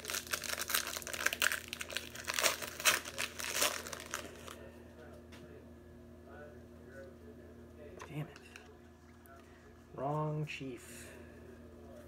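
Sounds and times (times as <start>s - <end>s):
foil wrapper crinkling: 0.0s - 4.6s.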